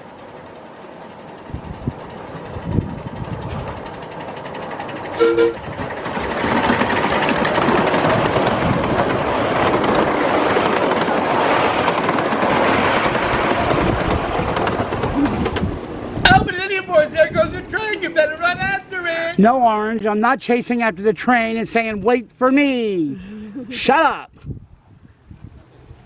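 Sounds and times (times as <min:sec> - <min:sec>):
miniature train rumbling past: 0:00.0 - 0:19.8
two-tone train toot: 0:05.0 - 0:06.0.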